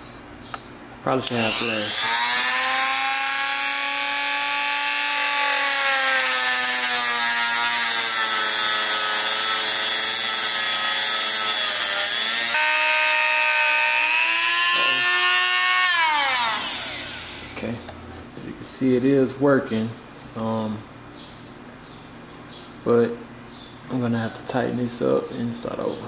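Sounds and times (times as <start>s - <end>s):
rotary tool motor whine: 1.3s - 17.6s.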